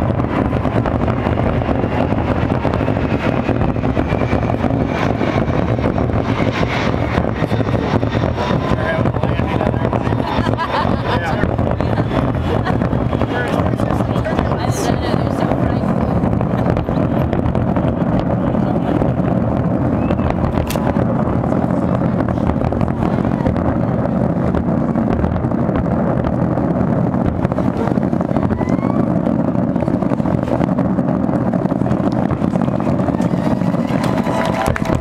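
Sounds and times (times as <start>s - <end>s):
fireworks bangs and crackles: 0.0s - 35.0s.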